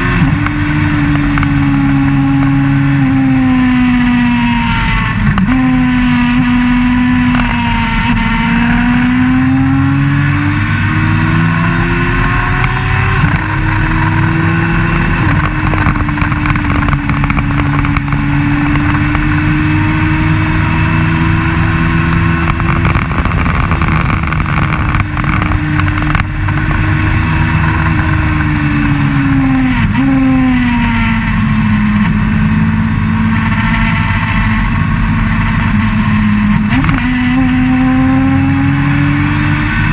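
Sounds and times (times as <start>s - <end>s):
race car engine at high revs: 0.0s - 39.9s
wind noise: 0.0s - 39.9s.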